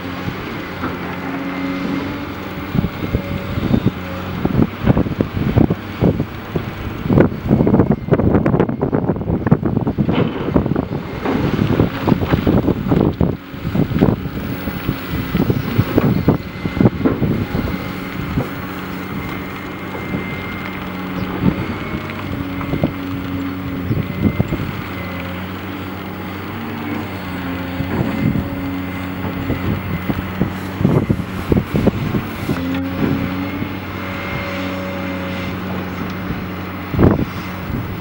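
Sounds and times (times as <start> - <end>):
stone crushing plant din: 0.0 - 37.6
diesel engine changing pitch: 0.0 - 38.0
rocks knocking and clattering: 9.6 - 33.8.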